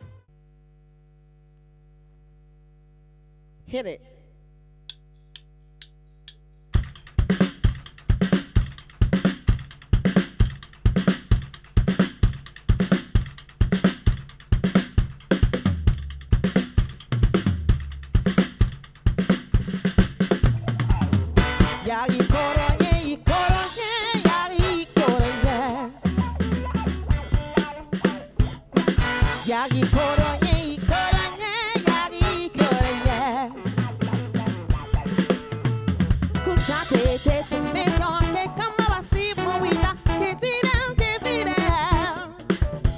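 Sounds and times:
drumstick clicks: 4.9s - 7.1s
drum kit groove: 6.2s - 42.9s
deep bass line: 15.4s - 18.3s, 20.4s - 23.6s, 24.7s - 30.9s, 32.4s - 38.6s
brass section: 21.4s - 23.8s, 24.4s - 31.1s, 31.9s - 34.0s, 36.5s - 40.5s, 41.2s - 42.3s.

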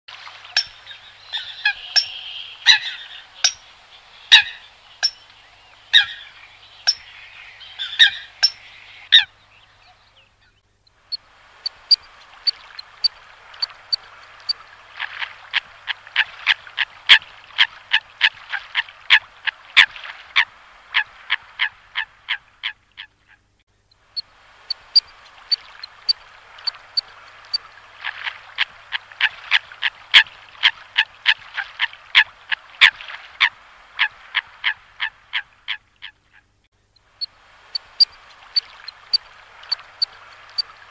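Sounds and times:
coots calling: 0.5s - 3.7s, 4.3s - 5.2s, 5.9s - 9.3s.

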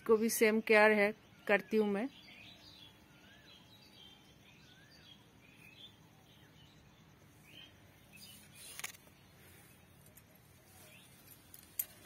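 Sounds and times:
brief rustle: 8.2s - 12.0s.

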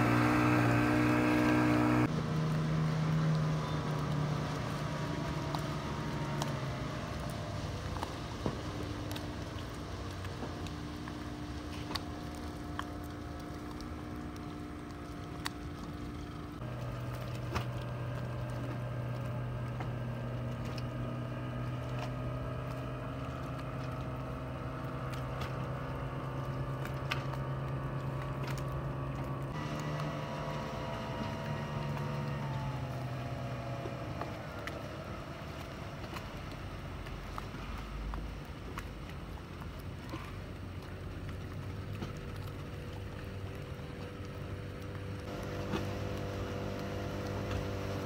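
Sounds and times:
outboard motor drone: 0.0s - 48.0s.

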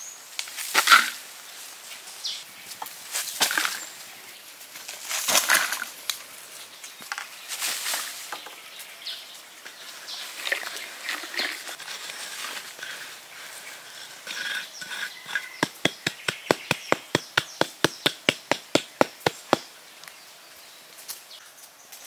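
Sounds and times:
wooden roller scraping earth: 9.7s - 19.7s.

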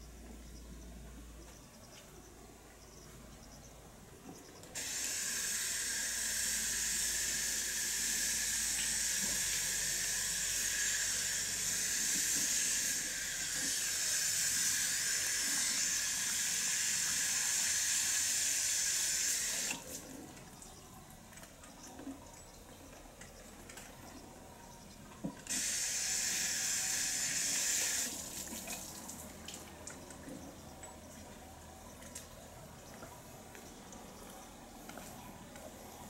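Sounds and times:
cicada chorus: 4.4s - 19.9s, 25.5s - 28.4s.

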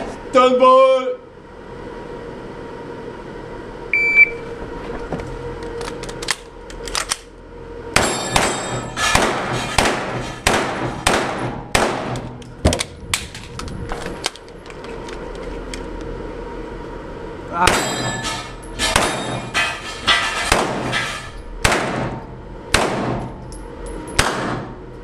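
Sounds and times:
shot timer beep: 4.0s - 4.4s
gunshots echoing indoors: 8.0s - 12.3s, 21.6s - 23.4s, 24.2s - 24.8s.

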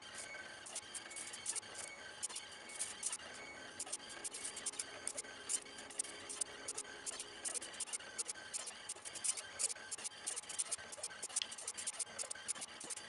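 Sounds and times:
faint stepper motor whine: 0.0s - 13.0s
pen scratching on paper: 3.8s - 6.5s, 7.1s - 13.0s.

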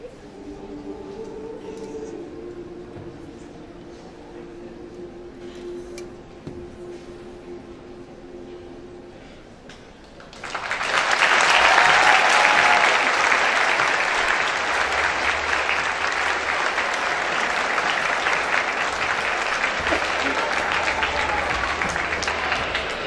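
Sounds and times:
crowd applauding: 10.0s - 23.0s.

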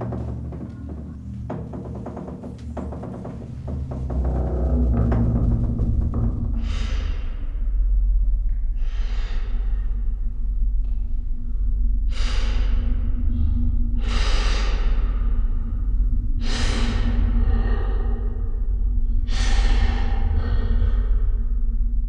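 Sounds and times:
woman breathing heavily: 0.0s - 7.4s
low steady drone: 0.0s - 22.0s.

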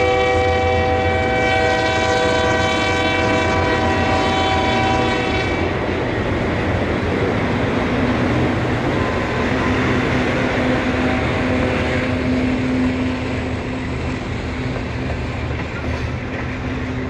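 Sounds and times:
diesel locomotive passing: 0.0s - 17.0s
freight train rumbling past: 0.0s - 17.0s.

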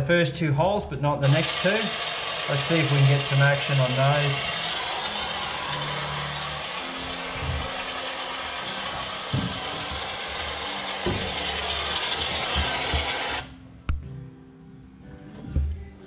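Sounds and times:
spray gun hissing: 1.2s - 13.5s
knocks: 9.3s - 10.1s, 11.0s - 11.4s.

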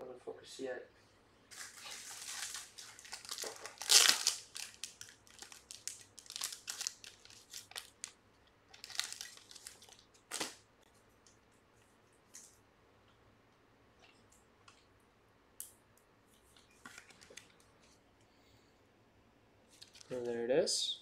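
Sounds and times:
plastic wrapping crinkling: 1.5s - 10.6s.

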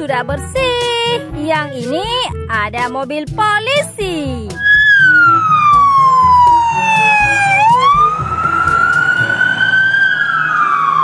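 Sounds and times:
police siren wailing: 4.6s - 11.0s.

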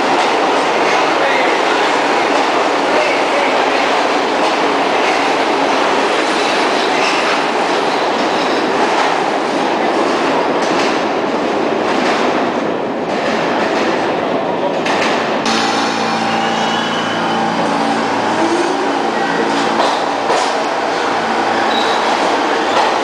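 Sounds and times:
subway train wheels rumbling on rail: 0.0s - 23.0s.

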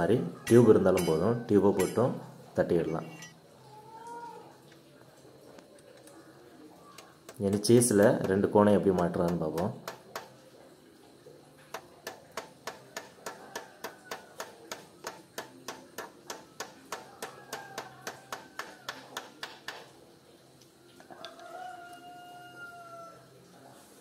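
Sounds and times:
hammer tapping on metal: 0.5s - 2.1s, 7.3s - 10.3s, 11.7s - 19.9s.

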